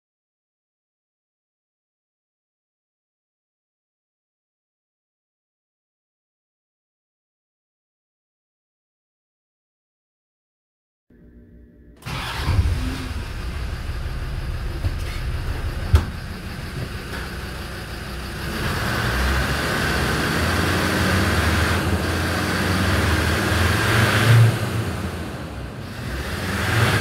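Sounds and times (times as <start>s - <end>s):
car engine starting and idling: 12.0s - 27.0s.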